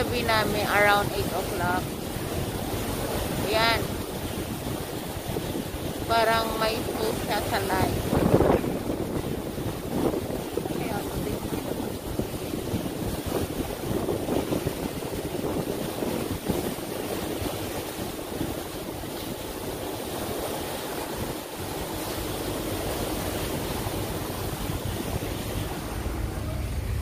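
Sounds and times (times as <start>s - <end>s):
water rushing past boat: 0.0s - 27.0s
wind buffeting microphone: 0.0s - 27.0s
low hum: 21.8s - 27.0s.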